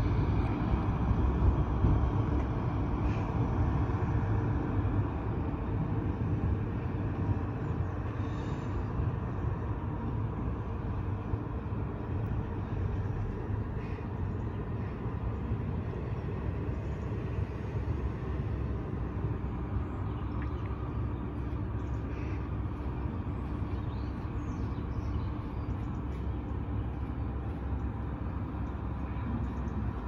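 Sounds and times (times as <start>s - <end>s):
distant vehicles rumbling: 0.0s - 30.0s.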